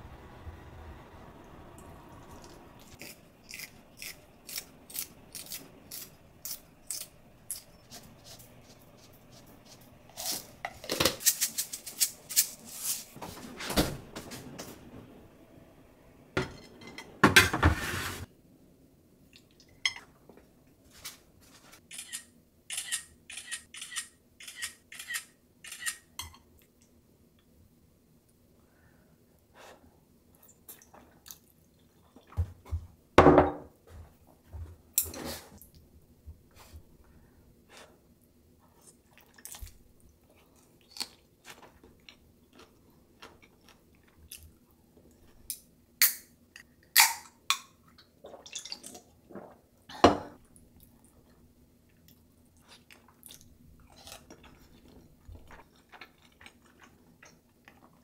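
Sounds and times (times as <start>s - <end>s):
chewing: 50.8s - 58.0s.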